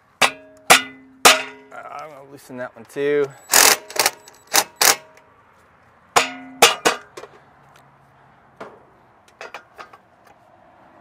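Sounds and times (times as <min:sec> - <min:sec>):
metal box knocking and clanking: 0:00.2 - 0:01.7, 0:06.2 - 0:07.4
ringing metal clang: 0:00.2 - 0:01.8, 0:06.2 - 0:07.2.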